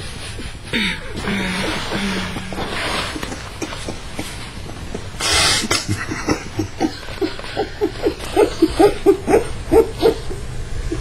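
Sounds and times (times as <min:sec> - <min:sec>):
quick short laughs: 0:02.6 - 0:09.2.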